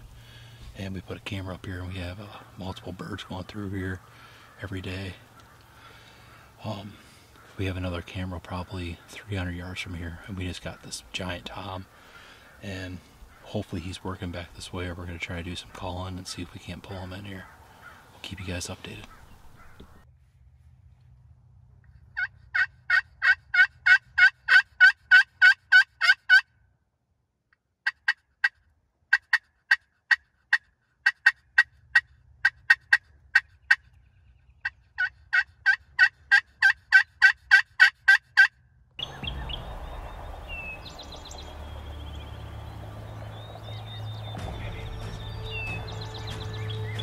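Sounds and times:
outdoor background noise: 0:00.0 - 0:47.0
turkey call yelps: 0:22.1 - 0:26.5, 0:27.8 - 0:33.9, 0:34.6 - 0:39.6.

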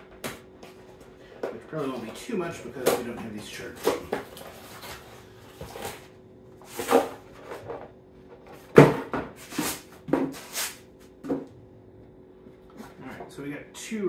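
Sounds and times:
cardboard scraping: 0:03.6 - 0:07.8, 0:08.4 - 0:10.8.

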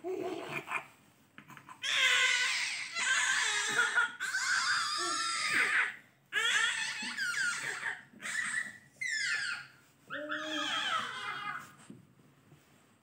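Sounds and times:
baby crying: 0:01.8 - 0:11.7.

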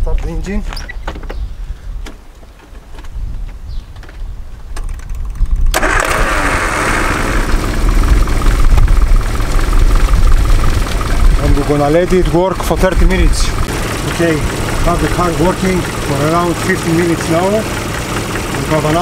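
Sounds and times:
car engine starting and running: 0:04.8 - 0:19.0.

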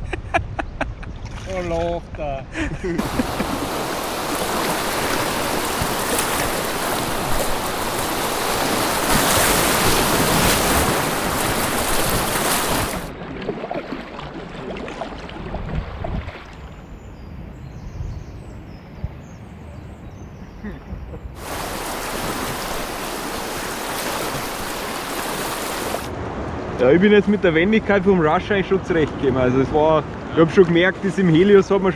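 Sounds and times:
whitewater rapids rushing: 0:03.0 - 0:13.1, 0:21.4 - 0:26.1.

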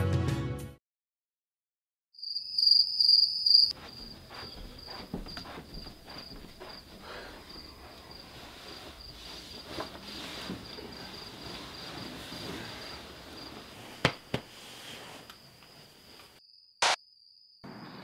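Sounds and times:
music: 0:00.0 - 0:00.8
cricket chirping: 0:02.2 - 0:09.9, 0:10.6 - 0:14.4, 0:15.3 - 0:18.0
soft footsteps: 0:03.7 - 0:14.6
rustling: 0:03.8 - 0:16.3.

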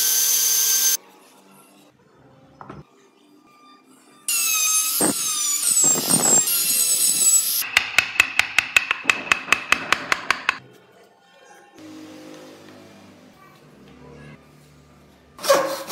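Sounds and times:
chisel tapping wood: 0:07.7 - 0:10.6.

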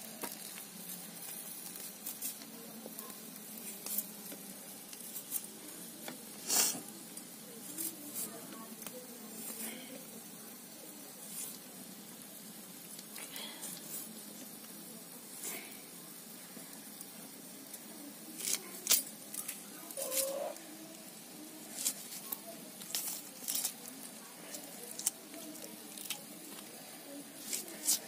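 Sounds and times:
onion being peeled: 0:00.1 - 0:09.9, 0:17.7 - 0:28.0.

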